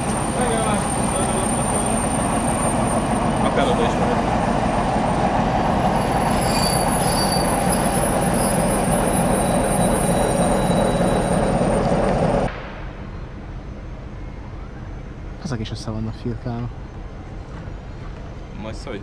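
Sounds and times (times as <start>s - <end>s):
high-pitched wheel squealing: 0.0s - 12.5s
rail yard low hum: 0.0s - 19.0s
train wheels rumbling on rails: 0.0s - 19.0s.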